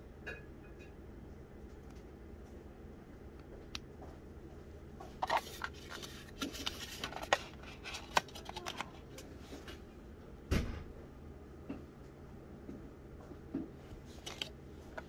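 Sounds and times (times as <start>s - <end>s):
plastic packaging clicks and scrapes: 5.2s - 9.3s, 14.1s - 15.0s.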